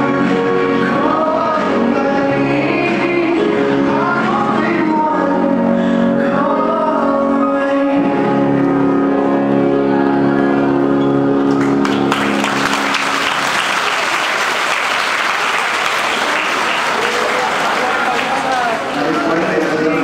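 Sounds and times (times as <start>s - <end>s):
audience applause: 11.5s - 20.0s.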